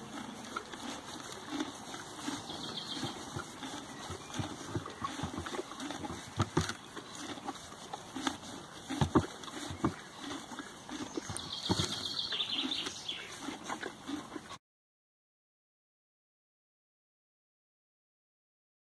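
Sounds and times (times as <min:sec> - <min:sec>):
pony feeding from plastic bucket: 0:00.0 - 0:14.6.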